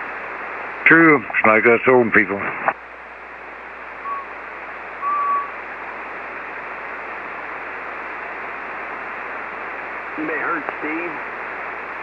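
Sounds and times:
radio static hiss: 0:00.0 - 0:12.0.

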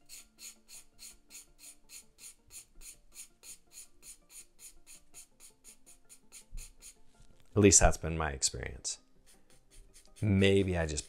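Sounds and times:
pencil scratching on paper: 0:00.0 - 0:07.1, 0:09.2 - 0:11.0.

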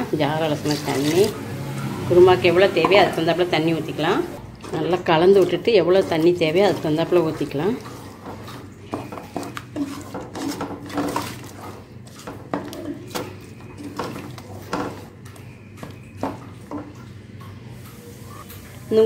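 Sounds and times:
wooden spatula scraping metal pot: 0:02.4 - 0:15.2.

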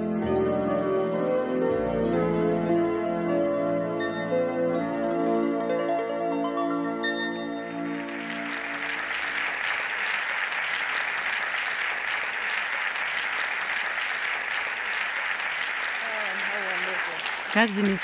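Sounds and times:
audience applauding: 0:07.9 - 0:18.0.

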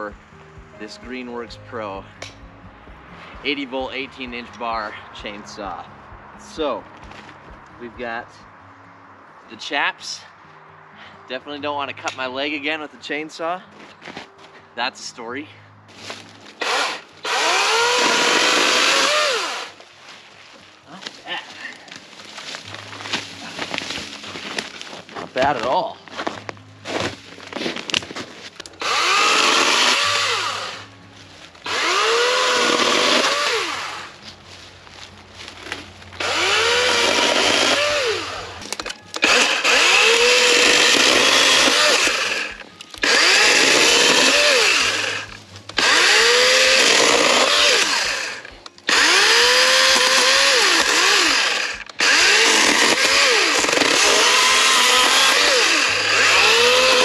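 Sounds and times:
electric chainsaw whine: 0:16.6 - 0:19.8, 0:28.8 - 0:31.0, 0:31.6 - 0:34.2, 0:35.6 - 0:57.0.

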